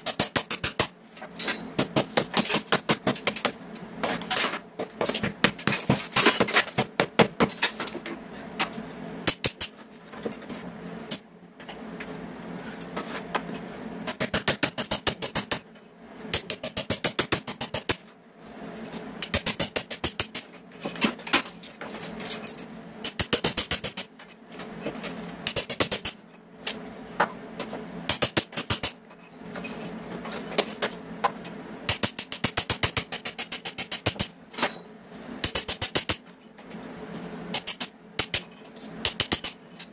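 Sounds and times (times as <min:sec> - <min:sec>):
hammer striking masonry wall: 0:01.8 - 0:03.6.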